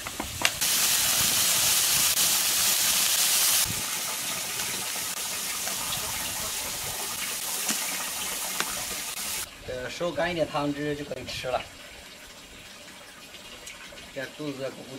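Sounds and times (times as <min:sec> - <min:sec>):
beer pouring and splashing: 0:00.6 - 0:09.5.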